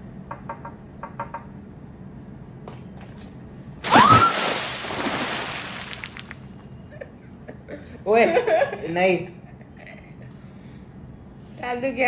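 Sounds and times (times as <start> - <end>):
water splashing into a face: 3.8 - 6.6.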